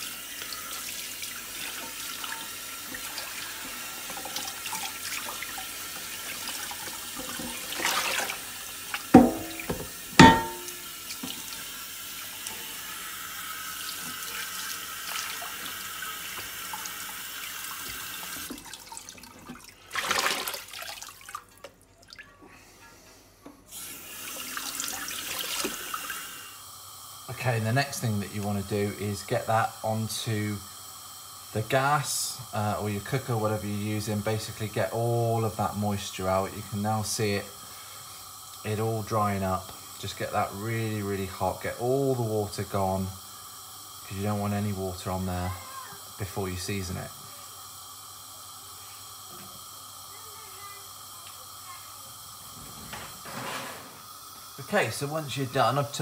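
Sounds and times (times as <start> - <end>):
tap water running into sink: 0.0 - 22.2, 23.7 - 27.3, 28.0 - 56.0
cloth scrubbing a skillet: 1.4 - 11.4.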